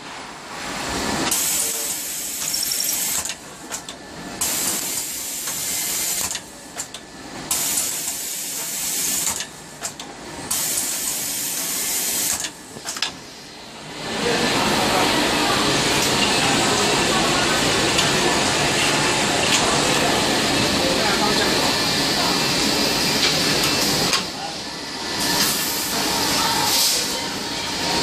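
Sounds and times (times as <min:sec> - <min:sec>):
machine hissing: 0:01.2 - 0:03.3.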